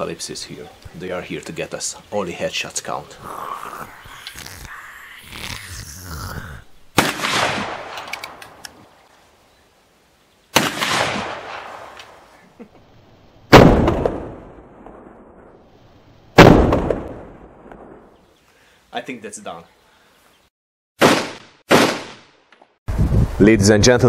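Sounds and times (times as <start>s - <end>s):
rifle shots: 7.0s - 8.6s, 10.6s - 12.1s, 13.5s - 15.1s, 16.4s - 17.9s, 21.0s - 22.3s.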